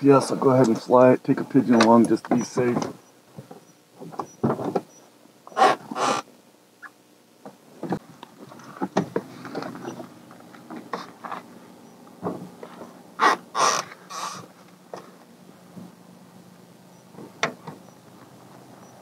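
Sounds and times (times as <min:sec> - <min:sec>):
rustling clicks and knocks of gear: 0:07.8 - 0:11.5
loud crunches: 0:13.2 - 0:14.5.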